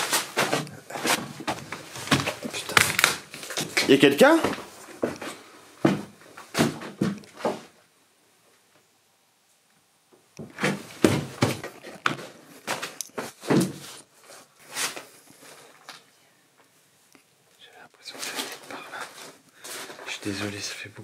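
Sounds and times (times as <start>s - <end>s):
footsteps on paper-covered stairs: 0.0s - 7.8s, 10.4s - 16.0s, 18.1s - 20.6s.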